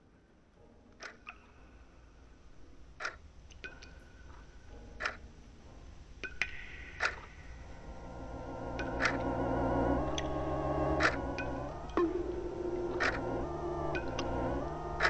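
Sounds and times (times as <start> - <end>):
low rumble: 7.5 - 15.0
sharp ticks: 8.1 - 15.0
faint clicks: 12.8 - 15.0.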